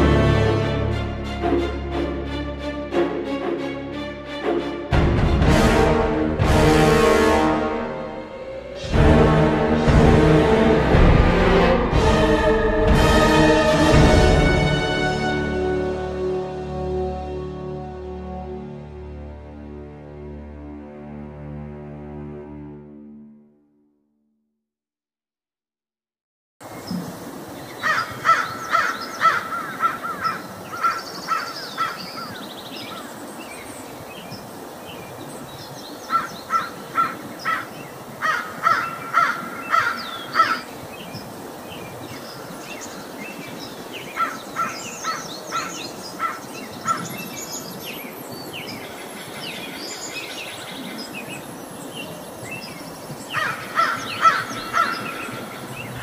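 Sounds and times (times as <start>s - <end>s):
small birds chirping: 27.6s - 56.0s
crows cawing: 27.8s - 32.4s, 36.1s - 40.7s, 44.1s - 47.1s, 53.3s - 55.6s.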